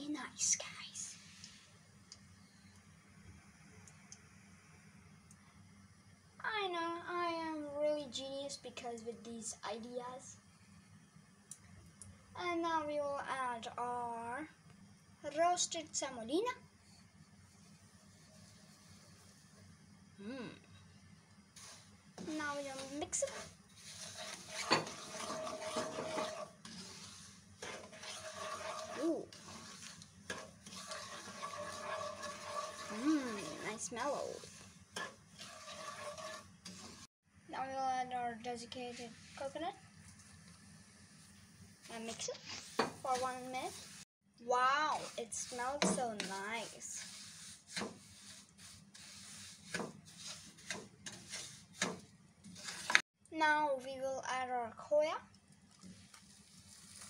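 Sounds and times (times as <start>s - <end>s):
light sizzle: 0.0s - 57.0s
wooden spoon scraping a wok: 16.8s - 19.6s, 21.6s - 37.1s, 38.7s - 44.1s, 44.8s - 53.0s, 55.7s - 57.0s.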